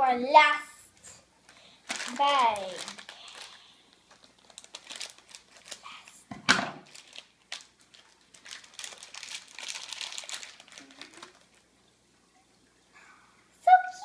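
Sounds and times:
plastic bag crinkling: 1.4s - 11.7s.

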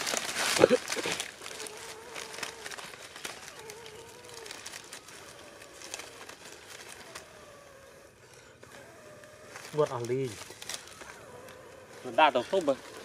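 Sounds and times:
leafy branches rustling: 0.0s - 13.0s.

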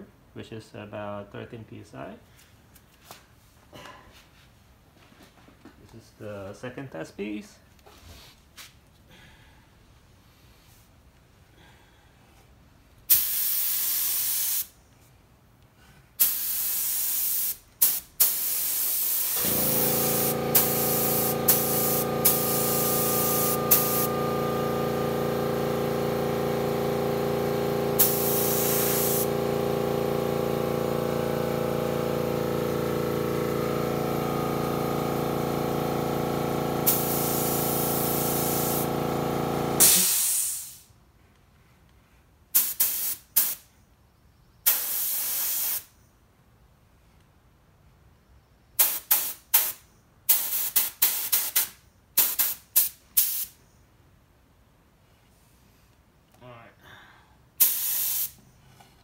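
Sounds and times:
spray gun hissing: 13.1s - 14.7s, 16.2s - 29.9s, 36.8s - 39.0s, 39.8s - 40.8s, 57.6s - 58.4s
air compressor motor hum: 16.2s - 40.8s.

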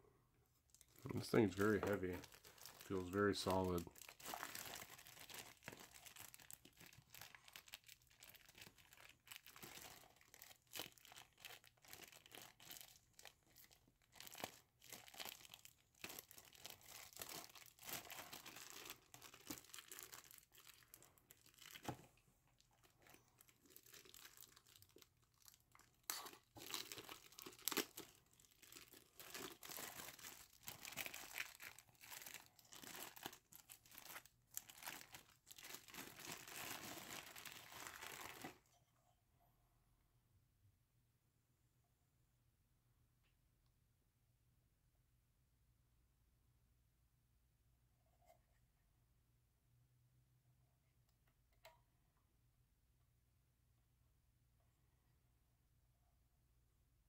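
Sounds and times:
plastic bag crinkling: 0.8s - 22.0s, 22.6s - 38.6s.

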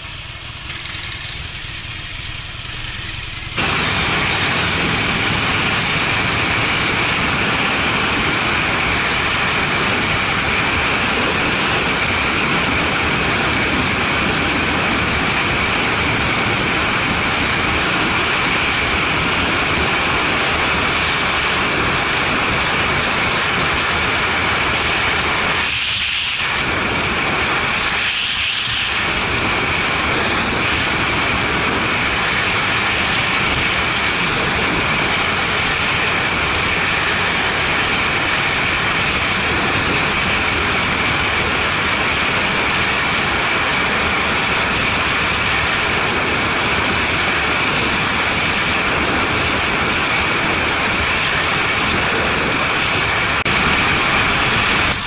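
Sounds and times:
motorcycle engine drone: 0.0s - 55.0s
wind rushing on microphone: 1.6s - 55.0s.

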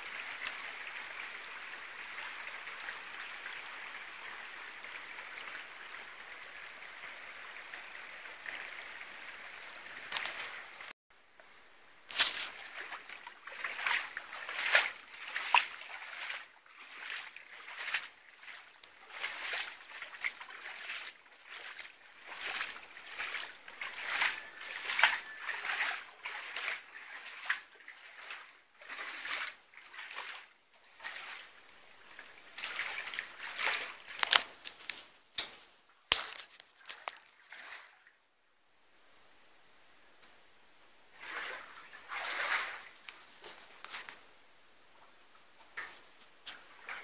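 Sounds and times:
footsteps splashing through water: 12.1s - 38.1s, 41.2s - 44.1s.

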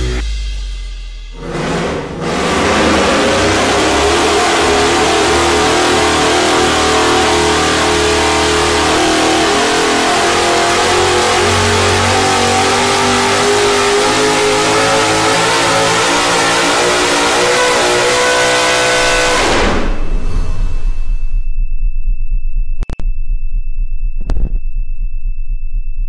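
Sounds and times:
engine running loud: 1.3s - 21.3s.

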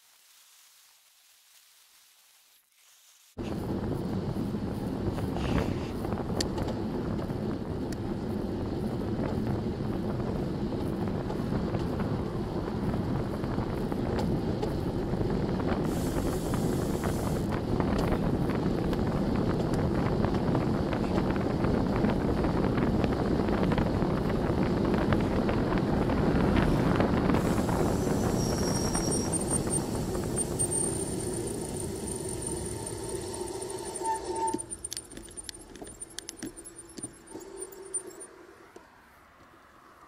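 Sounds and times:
wind and road noise: 3.0s - 40.0s
bicycle freewheel clicking: 27.6s - 38.2s.

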